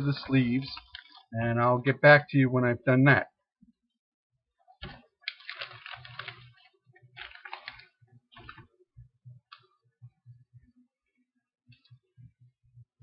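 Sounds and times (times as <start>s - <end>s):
plastic sleeves crinkling: 0.2s - 1.3s, 4.8s - 8.7s.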